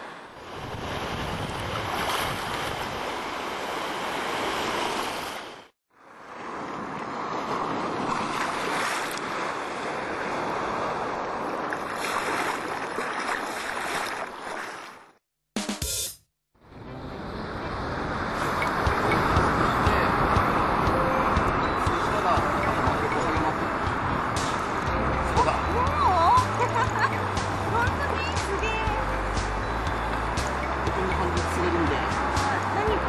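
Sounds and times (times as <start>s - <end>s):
small waves washing: 0.0s - 15.2s, 17.8s - 33.0s
wind on microphone: 0.4s - 5.4s, 17.6s - 28.2s.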